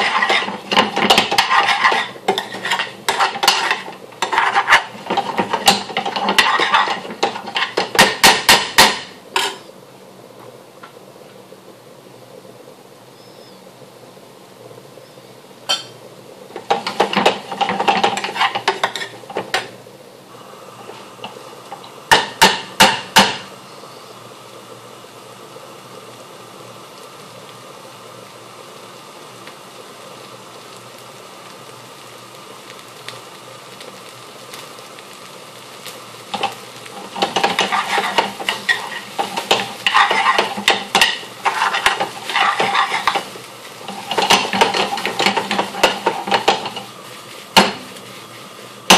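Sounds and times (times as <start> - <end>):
metal spoon scraping pan: 0.0 - 7.8, 16.7 - 19.2, 36.4 - 43.3
low steady hiss from pan: 0.0 - 48.9
metal taps on pan: 22.1 - 23.5
pan clattering on hob: 36.4 - 43.3, 43.9 - 46.9.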